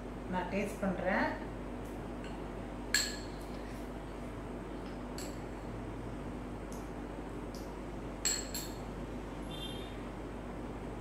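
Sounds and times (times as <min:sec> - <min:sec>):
steady low hum: 0:00.0 - 0:11.0
metal spoon clinking on bowl: 0:05.2 - 0:05.5, 0:08.2 - 0:08.8.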